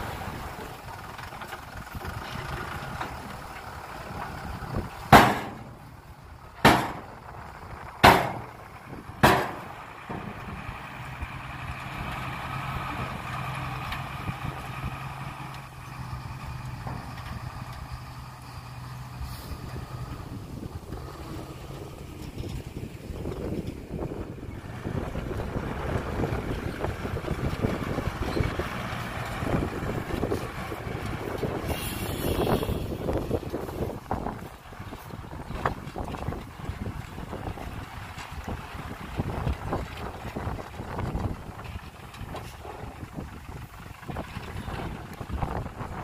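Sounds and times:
diesel truck engine idling: 0.0 - 46.0
loud ringing bangs: 5.1 - 5.8, 6.6 - 7.1, 8.0 - 8.5, 9.2 - 9.8.

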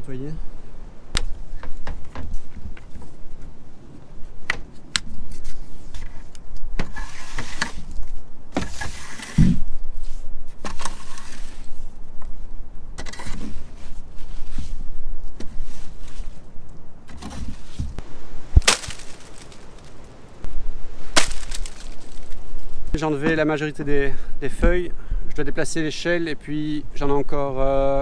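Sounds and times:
leaves scraping and rustling: 1.2 - 12.1, 13.0 - 23.1.

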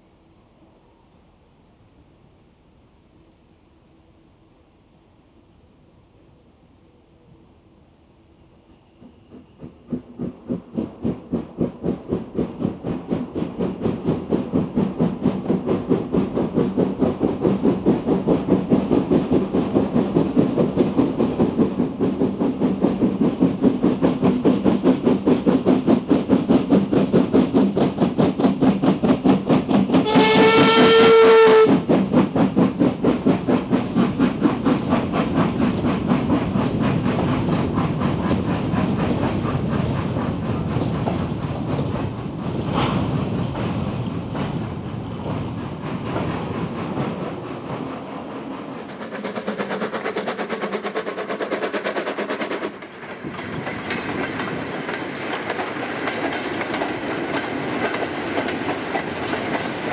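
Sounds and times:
steam locomotive chuffing: 8.5 - 59.9
steam whistle blast: 30.0 - 31.7
wagons rolling past: 48.8 - 59.9.

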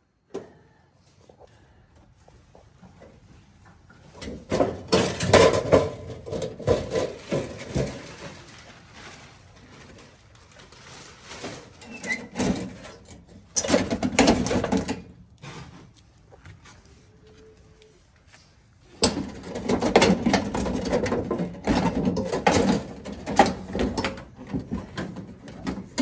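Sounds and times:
sheet metal rattling and scraping: 4.2 - 8.8, 11.1 - 15.2, 19.0 - 26.0.

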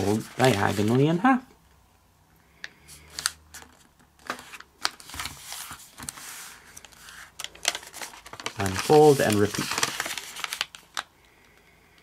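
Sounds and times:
soft paper rubbing: 0.0 - 1.2, 3.1 - 10.8
paper crackling and tapping: 3.2 - 11.1.

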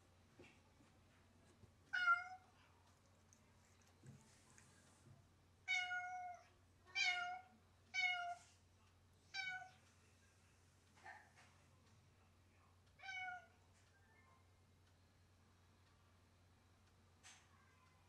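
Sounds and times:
cat meowing: 1.9 - 2.5, 5.7 - 8.4, 13.0 - 13.5.

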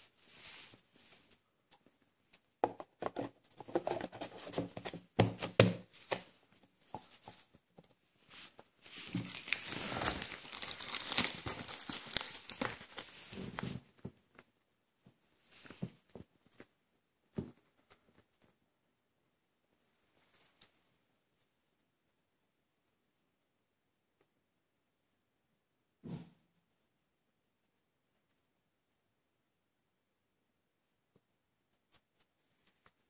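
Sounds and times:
cardboard box knocks and clicks: 2.6 - 6.3
packaging crinkling: 8.9 - 13.7.

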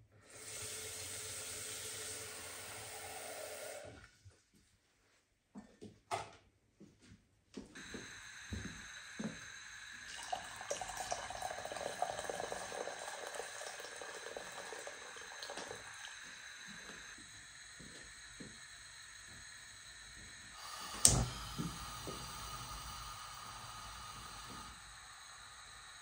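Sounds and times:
water pouring into metal pot: 9.8 - 17.0.

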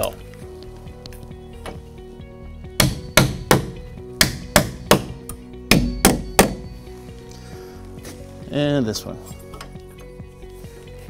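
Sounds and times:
hammer striking nails into wood: 2.8 - 6.7.

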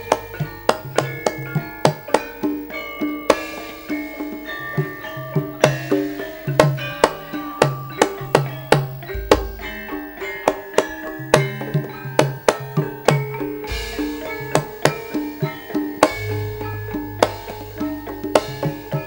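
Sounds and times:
hand drum strokes: 0.0 - 19.0
deep low booms: 9.2 - 9.9, 16.1 - 19.0.

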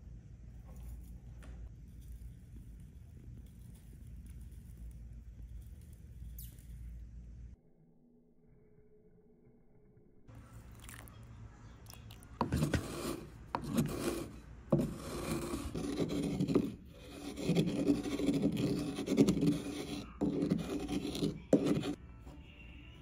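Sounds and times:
stone pestle grinding in mortar: 12.4 - 22.0.

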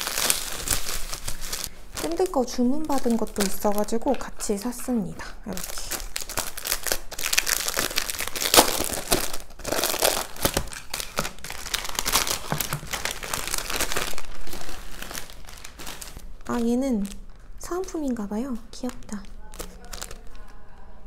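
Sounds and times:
plastic wrapping crinkling: 0.0 - 21.0.

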